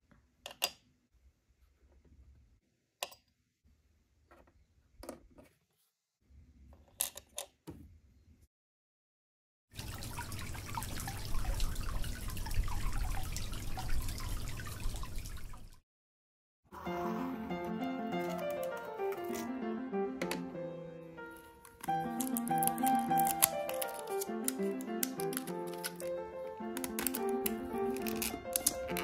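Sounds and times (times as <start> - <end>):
faucet running water: 9.8 - 15.8, 21.6 - 29.0
plastic pieces clicking: 18.1 - 19.5, 21.6 - 29.0.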